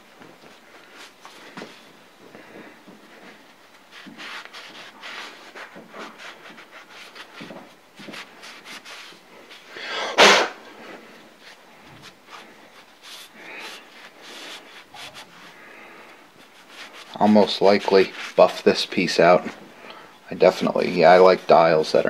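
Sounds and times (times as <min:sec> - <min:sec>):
cloth rag wiping metal: 0:12.3 - 0:15.7, 0:16.3 - 0:19.6.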